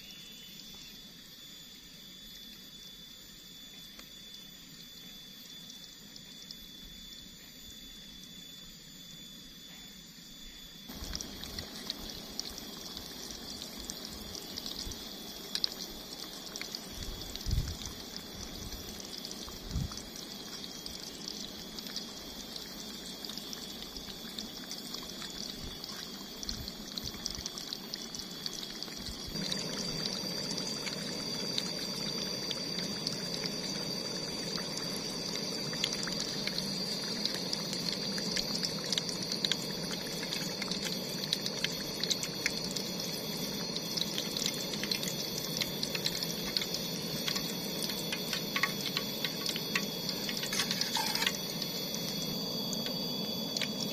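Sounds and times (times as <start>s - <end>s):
tofu frying in hot oil: 10.8s - 53.9s.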